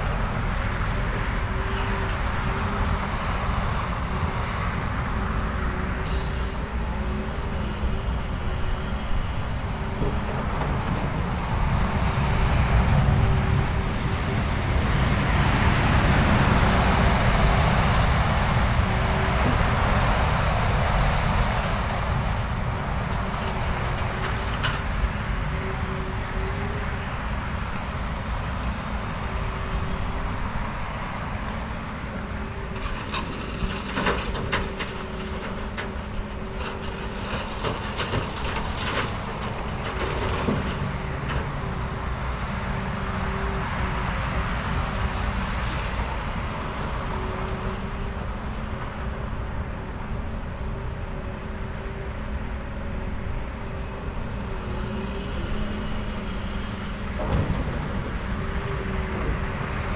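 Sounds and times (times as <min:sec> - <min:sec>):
heavy machinery rumbling: 0:00.0 - 0:59.9
metallic clanks and knocks: 0:57.1 - 0:59.7.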